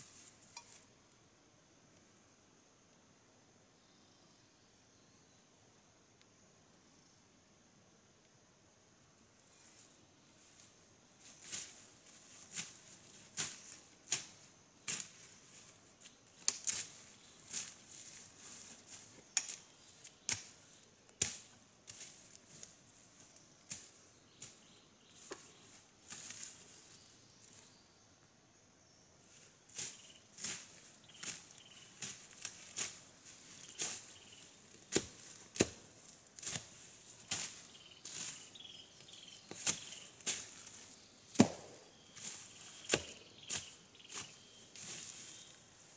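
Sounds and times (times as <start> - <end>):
undergrowth being cut: 11.4 - 26.8, 29.7 - 45.9.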